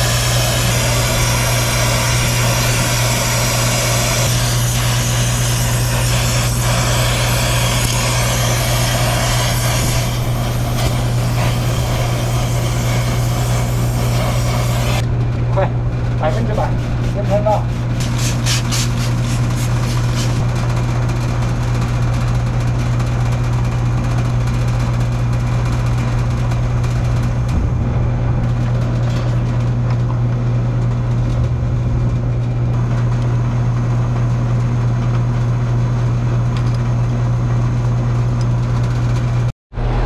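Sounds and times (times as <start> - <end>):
machinery humming: 0.0 - 21.1, 39.7 - 40.0
spray bottle squirts: 18.0 - 20.4.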